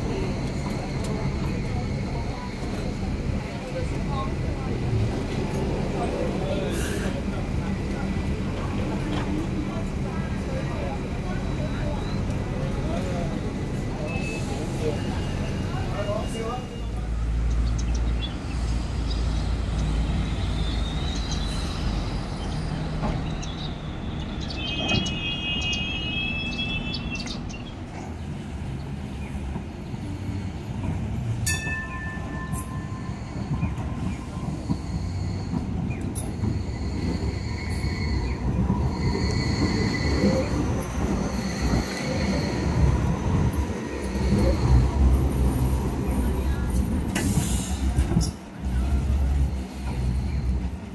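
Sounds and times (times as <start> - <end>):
tram rumbling on track: 0.0 - 50.9
wheels squealing: 31.2 - 46.4.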